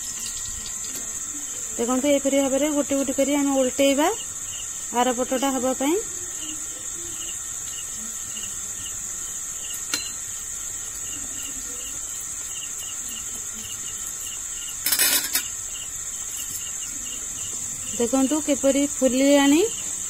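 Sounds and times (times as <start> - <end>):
high-pitched insect trill: 0.0 - 20.0
metal spoon clinking on pan: 9.9 - 10.2.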